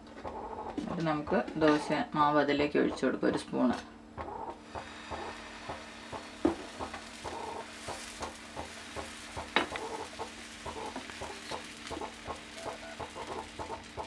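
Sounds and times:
steady low hum: 0.0 - 14.0
batter pouring onto hot pan: 4.8 - 14.0.

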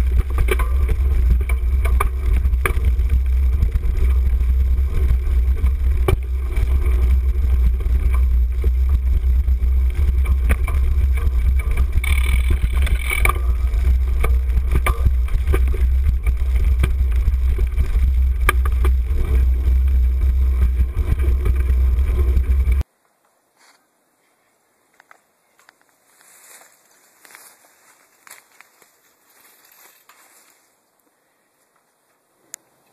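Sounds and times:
bike clattering over bumps: 0.0 - 22.8
wind rumble on microphone: 0.0 - 22.8.

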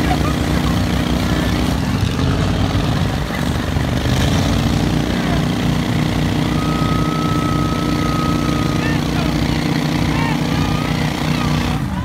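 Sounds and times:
vehicle engines idling: 0.0 - 12.0.

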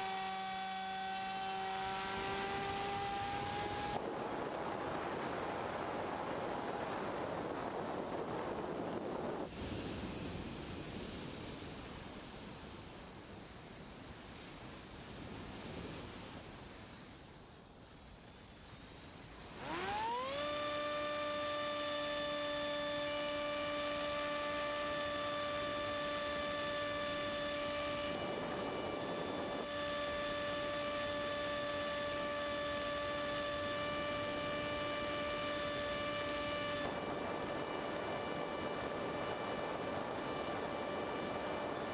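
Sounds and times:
model plane motor whining: 0.0 - 4.0, 19.5 - 41.9
wind noise rush: 1.8 - 17.1, 25.4 - 41.9.

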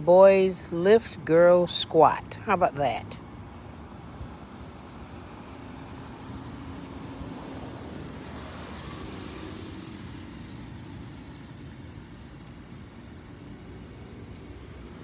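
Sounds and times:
car passing by: 5.4 - 12.0.

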